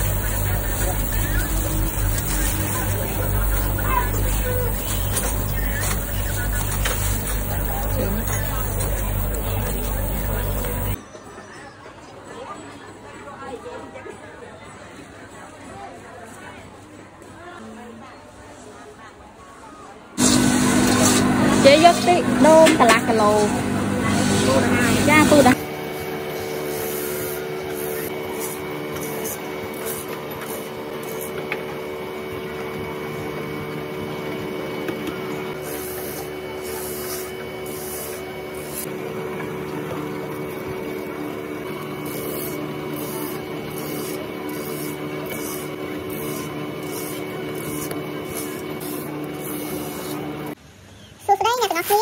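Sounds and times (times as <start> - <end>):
motor hum: 0.0 - 11.0, 20.2 - 50.6
rasping scrape of coconut shredding: 41.6 - 50.6.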